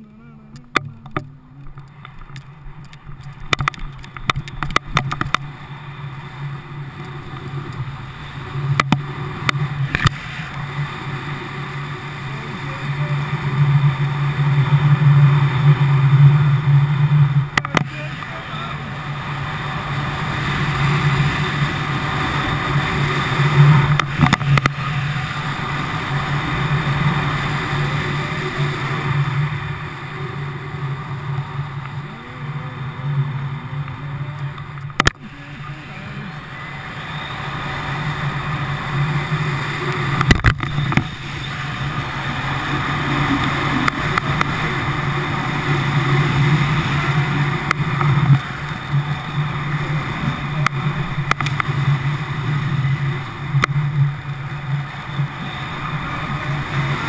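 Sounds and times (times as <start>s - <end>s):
wind rushing over microphone: 0.0s - 57.0s
sharp clicks: 34.6s - 35.3s.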